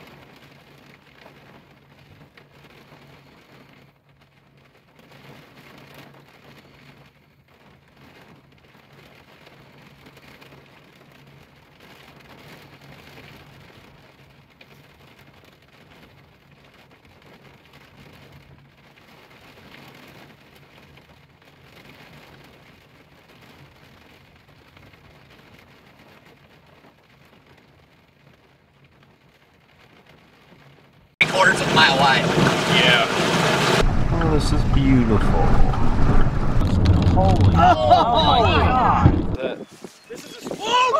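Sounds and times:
rain on car windshield: 0.0s - 40.9s
low steady hum: 33.8s - 39.4s.

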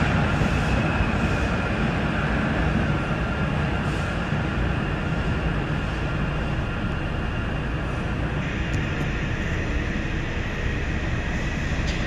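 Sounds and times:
metro train rumbling in tunnel: 0.0s - 12.0s
faint high whine: 4.7s - 12.0s.

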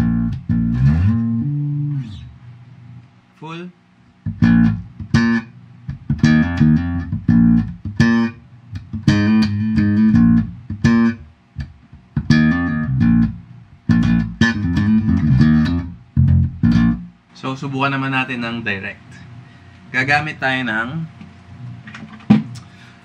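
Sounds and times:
electric bass plucked notes: 0.0s - 2.3s, 4.2s - 17.2s.

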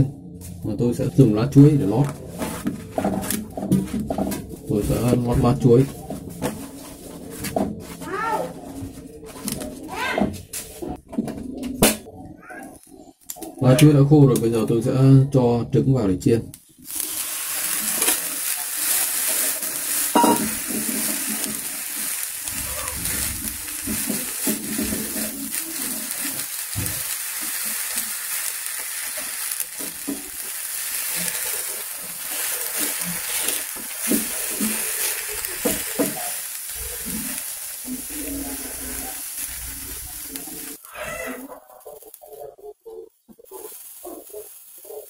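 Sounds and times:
egg sizzling in a pan: 16.6s - 45.0s.

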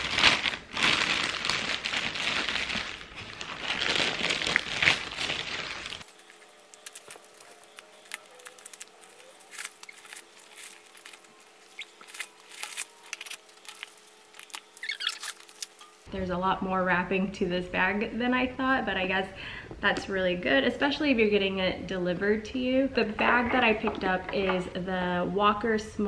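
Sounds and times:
paper wrapping rustling: 0.0s - 16.0s
plastic wrap crinkling: 0.0s - 16.1s.

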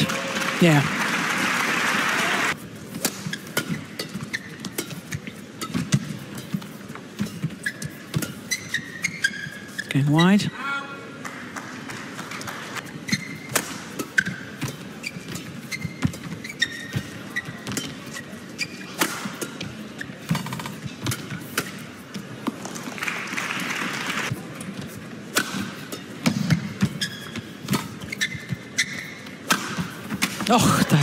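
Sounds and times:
crowd cheering: 0.0s - 2.6s, 22.8s - 24.3s
shoes squeaking on court: 2.5s - 10.5s, 12.8s - 22.9s, 24.1s - 31.0s
racket striking shuttlecock: 13.4s - 16.3s, 18.9s - 19.6s, 25.3s - 28.0s, 29.4s - 30.5s.

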